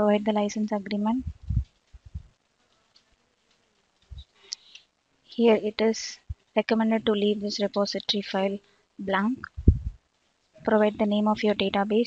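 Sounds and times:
soft low thump: 0:01.2 - 0:02.3, 0:09.5 - 0:10.0.

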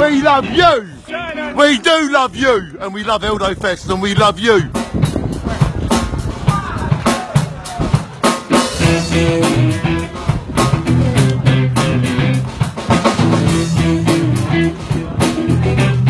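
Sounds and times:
drum kit beat: 0:03.9 - 0:16.0
electric guitar: 0:08.5 - 0:16.0.

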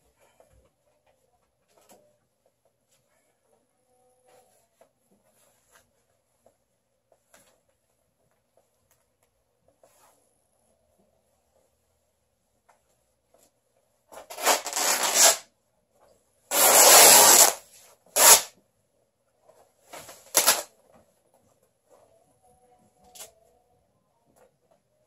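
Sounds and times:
fabric tearing: 0:14.2 - 0:15.4, 0:16.5 - 0:17.6, 0:18.2 - 0:18.5, 0:20.0 - 0:20.7.

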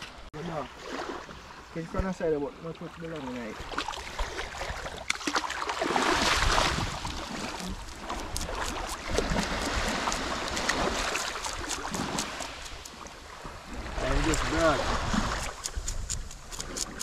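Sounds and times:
small waves lapping at shoreline: 0:00.0 - 0:17.0
knife clicking and scraping on fish: 0:07.6 - 0:13.0, 0:15.3 - 0:17.0.

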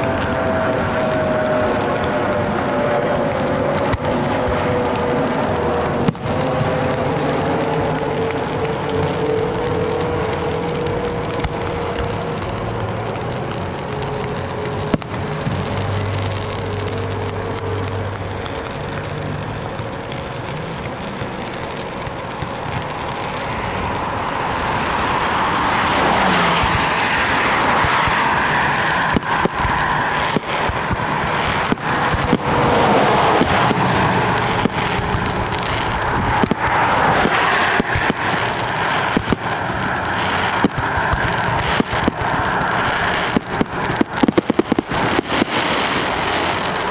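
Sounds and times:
sharp cracks: 0:00.0 - 0:46.9
vehicle and road noise: 0:00.0 - 0:46.9
wind: 0:00.0 - 0:46.9.

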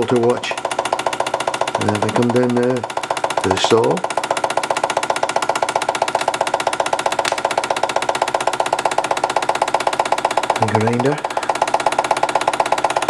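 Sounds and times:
toy steam engine running: 0:00.0 - 0:13.0.

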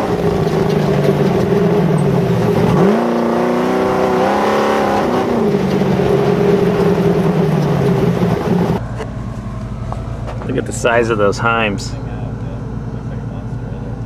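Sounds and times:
buggy engine revving high: 0:00.0 - 0:14.0
steady low hum: 0:04.8 - 0:14.0.

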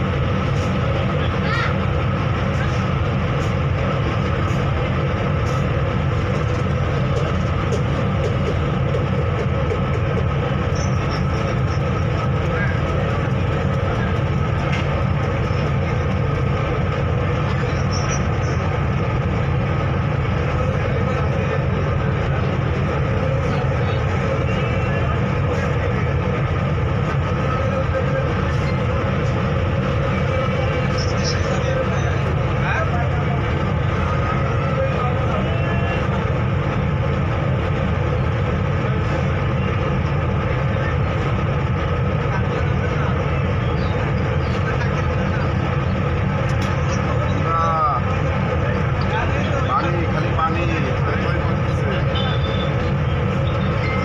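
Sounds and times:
ferry engine drone: 0:00.0 - 0:54.0.

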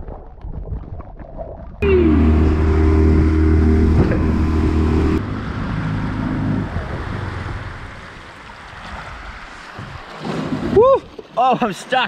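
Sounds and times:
outboard motor running: 0:01.8 - 0:08.7.

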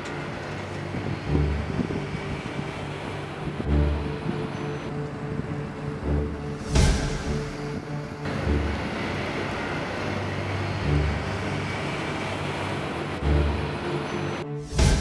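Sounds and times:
steady rushing noise: 0:00.0 - 0:15.0
low background music with bass swells: 0:00.3 - 0:15.0
swoosh: 0:06.3 - 0:12.6, 0:14.4 - 0:15.0.

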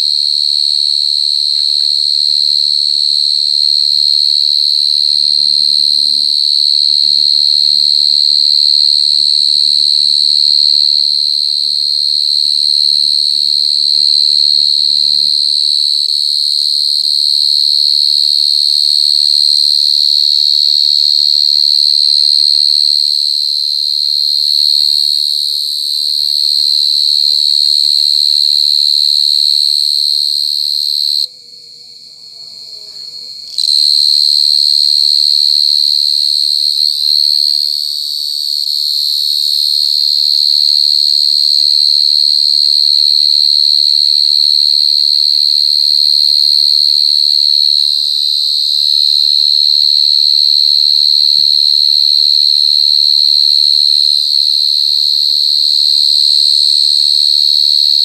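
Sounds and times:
cricket loud high-pitched trill: 0:00.0 - 0:58.0.

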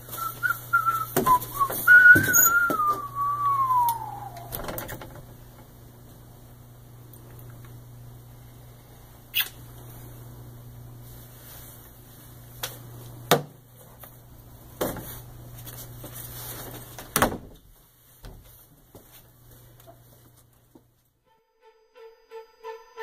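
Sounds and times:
steady low hum: 0:00.0 - 0:23.0
door banging shut: 0:17.1 - 0:17.6.

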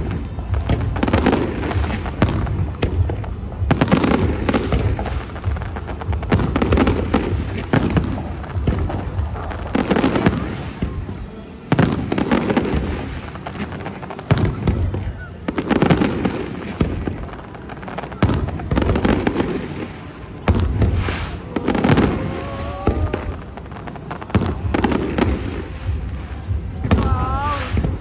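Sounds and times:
fireworks bangs: 0:00.0 - 0:28.0.

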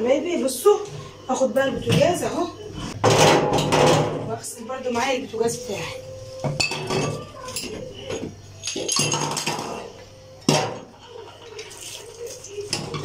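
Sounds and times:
metal clinks and knocks: 0:06.5 - 0:09.8.

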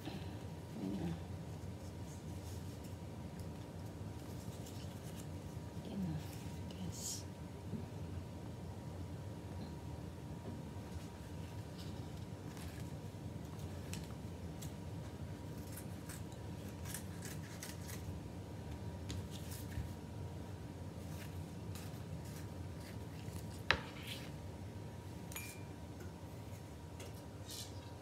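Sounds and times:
scissors snipping leaf: 0:15.6 - 0:18.1.

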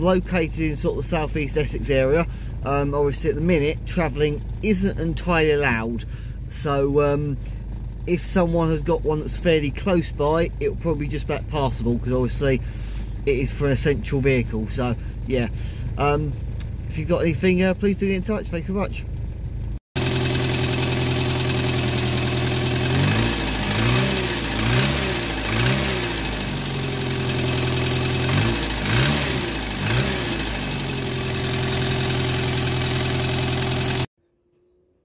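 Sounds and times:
car engine idling: 0:00.0 - 0:34.1
engine revving in quick blips: 0:22.5 - 0:32.9.

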